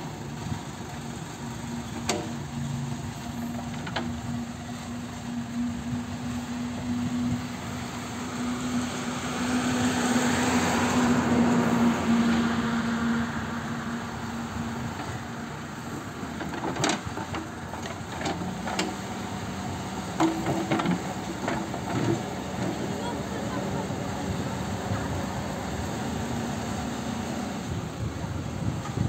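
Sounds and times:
diesel engine under load: 0.0 - 29.0
metal clanks and knocks: 16.4 - 19.0, 20.2 - 22.8.

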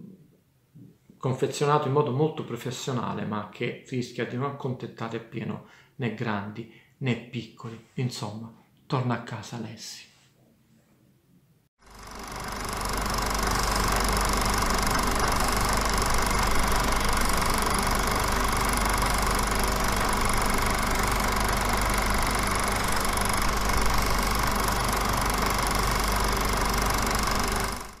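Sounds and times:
machine running with fast clatter: 11.8 - 28.0.

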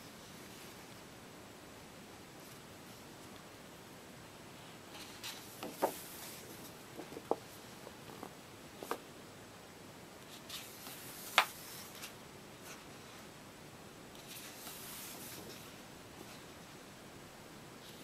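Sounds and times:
paper pages rustling: 4.9 - 7.3, 10.3 - 12.8, 14.2 - 16.5.

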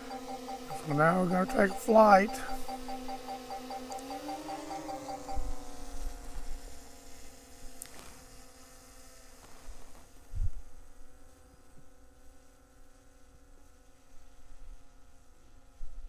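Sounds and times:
drone propellers humming: 0.0 - 9.4.

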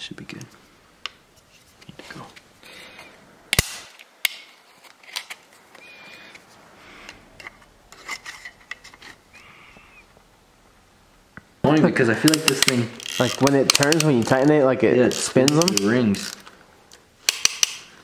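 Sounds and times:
sharp metal clicks: 12.2 - 14.4, 15.2 - 18.0.

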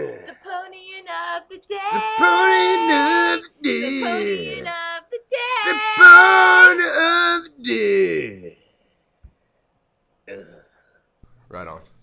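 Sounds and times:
person singing unaccompanied: 0.0 - 8.3.

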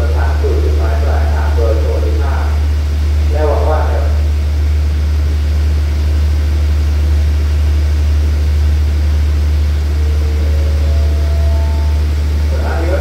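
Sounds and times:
faint steady tones: 0.0 - 13.0
train diesel engine idling: 0.0 - 13.0.

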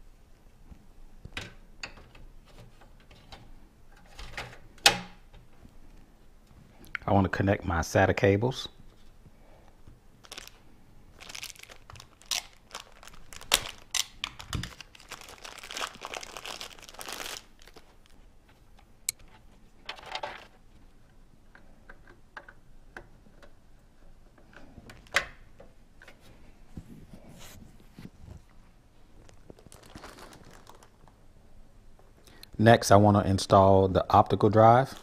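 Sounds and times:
cables rustling and clicking: 0.6 - 7.1, 8.8 - 31.3
plastic packaging crinkling: 10.2 - 18.3, 29.1 - 31.2.

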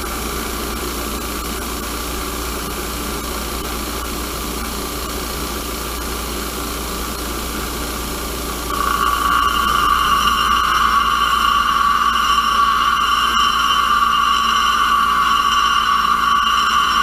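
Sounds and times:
bench grinder running: 0.0 - 17.0
steel grinding on wheel: 8.7 - 17.0.

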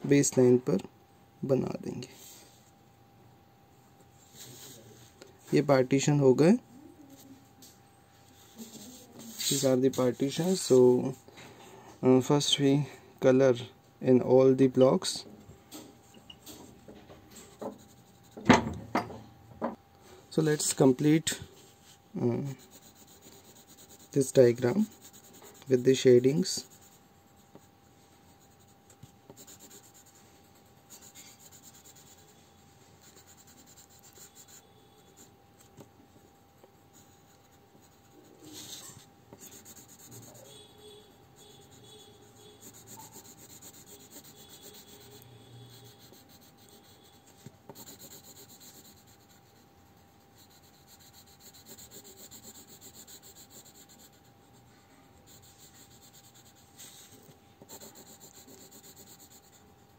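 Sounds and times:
pencil scratching on paper: 7.1 - 10.8, 17.3 - 18.4, 20.3 - 59.9.

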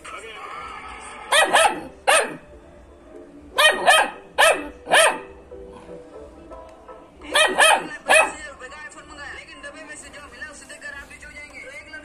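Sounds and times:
puppy barking: 1.3 - 2.5, 3.6 - 5.4, 7.3 - 8.4.

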